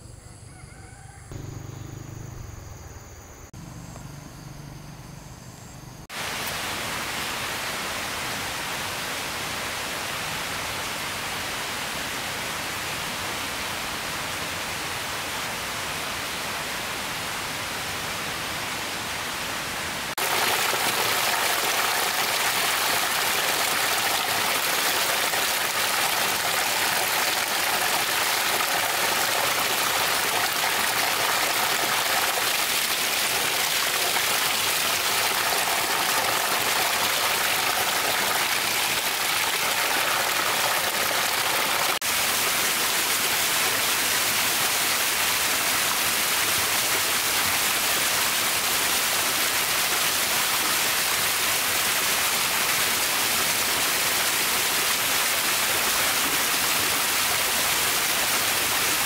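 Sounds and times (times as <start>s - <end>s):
waterfall rushing: 20.0s - 59.0s.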